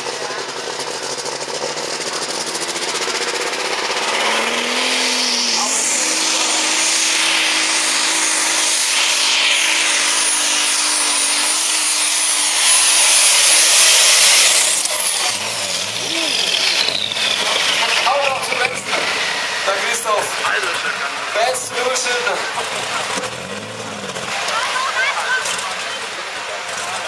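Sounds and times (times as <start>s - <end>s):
tractor diesel engine at full power: 0.0s - 27.0s
loud hissing rush: 0.5s - 21.4s.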